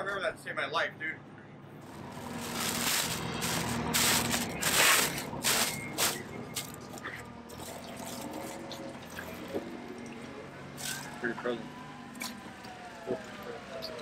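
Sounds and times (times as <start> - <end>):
plastic liner crinkling: 1.9 - 7.0.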